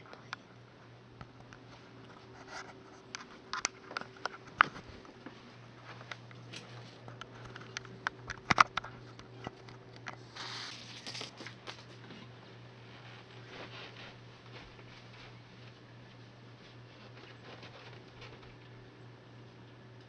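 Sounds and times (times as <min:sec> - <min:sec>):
steady low hum: 0:00.0 - 0:20.0
rustling: 0:10.2 - 0:18.7.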